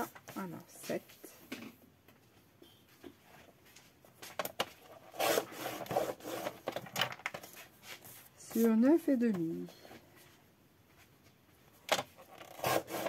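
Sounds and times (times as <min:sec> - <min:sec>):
paper trimmer blade rasping: 0:05.0 - 0:06.7, 0:12.3 - 0:13.0.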